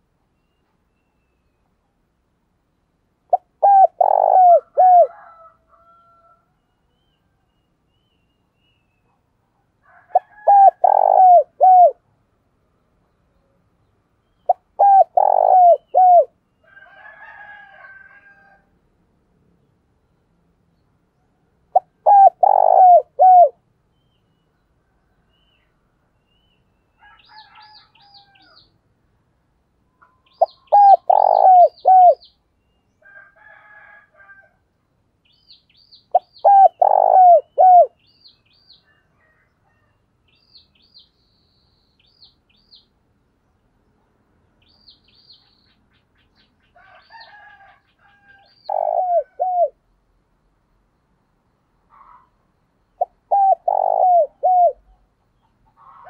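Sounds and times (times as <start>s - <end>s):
dove cooing: 3.3s - 5.4s, 9.9s - 12.0s, 14.5s - 16.4s, 21.7s - 23.6s, 30.4s - 32.3s, 36.1s - 38.0s, 48.2s - 49.8s, 53.0s - 55.1s.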